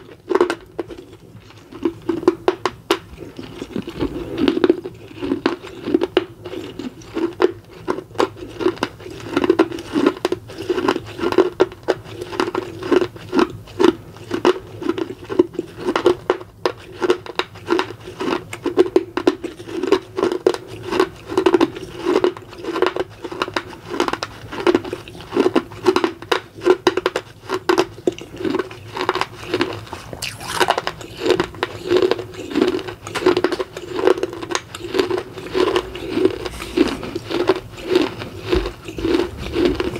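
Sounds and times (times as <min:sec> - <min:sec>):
chewing gritty clay crunches: 0:00.0 - 0:39.9.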